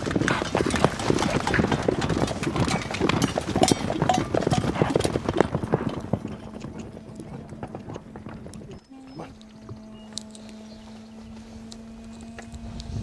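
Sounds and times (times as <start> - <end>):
horse hooves clopping: 0.0 - 13.0.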